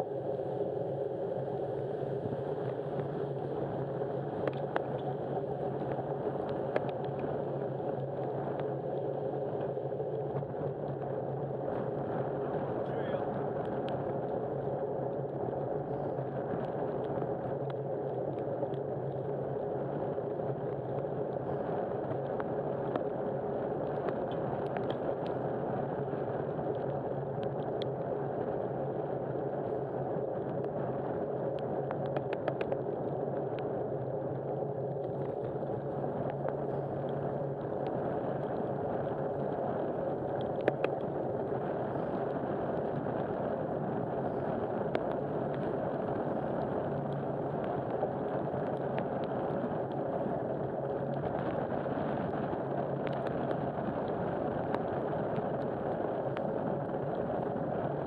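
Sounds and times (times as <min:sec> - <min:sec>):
faint clicks: 0:04.4 - 0:11.1, 0:13.2 - 0:20.0, 0:23.8 - 0:25.5, 0:26.5 - 0:28.1, 0:31.5 - 0:33.7, 0:34.9 - 0:50.4, 0:51.1 - 0:56.9.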